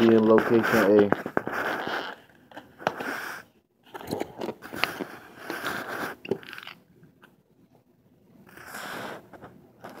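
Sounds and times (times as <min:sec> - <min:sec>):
packaging crinkling and scraping: 0:03.9 - 0:06.8.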